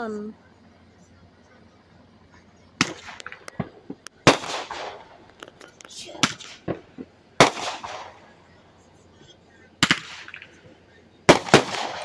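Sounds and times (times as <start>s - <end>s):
fireworks banging: 2.1s - 8.6s, 9.8s - 12.0s.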